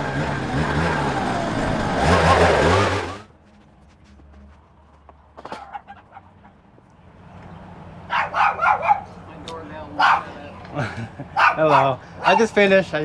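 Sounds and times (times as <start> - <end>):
small petrol engine running: 0.0 - 3.3.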